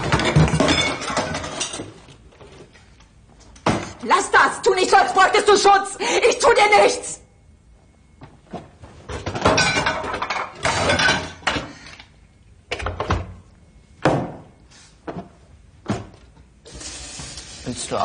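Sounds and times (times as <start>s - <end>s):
dishes and utensils clattering: 0.0s - 2.2s, 9.1s - 11.8s.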